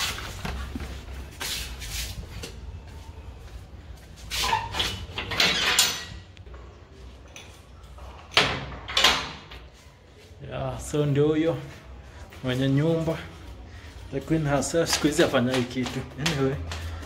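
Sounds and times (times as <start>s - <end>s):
metal gate clanking: 4.4s - 6.3s
metal latch and bolt rattling: 4.7s - 6.3s.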